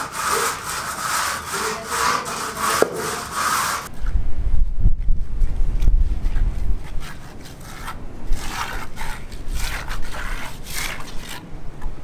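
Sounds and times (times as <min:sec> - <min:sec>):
trowel scraping concrete: 0:00.0 - 0:04.1, 0:06.2 - 0:11.5.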